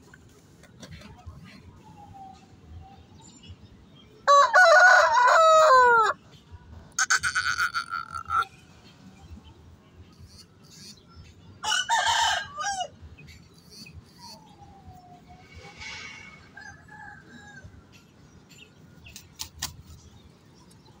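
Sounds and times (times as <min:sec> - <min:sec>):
rooster crowing: 0:04.3 - 0:06.2, 0:11.6 - 0:13.0
faint bird calls: 0:10.0 - 0:11.4, 0:13.2 - 0:18.0.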